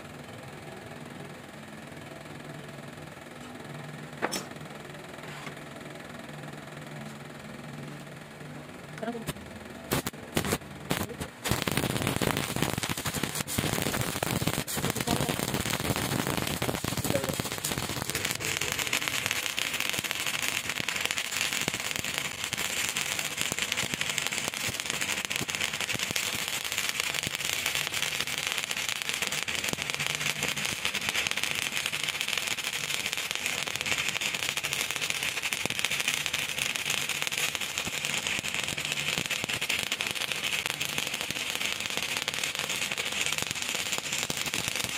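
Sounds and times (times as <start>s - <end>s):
welding arc crackling: 9.0s - 44.9s.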